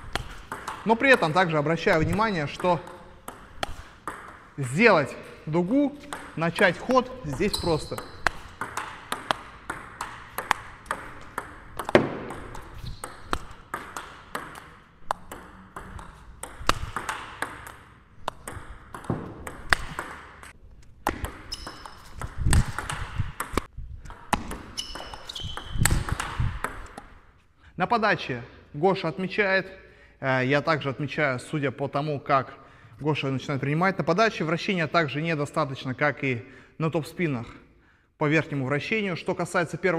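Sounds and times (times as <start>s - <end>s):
table tennis ball clicking: 0.0s - 1.3s, 1.9s - 4.5s, 5.7s - 27.2s
short high squeaks: 7.3s - 8.3s, 21.5s - 22.2s, 24.7s - 25.9s.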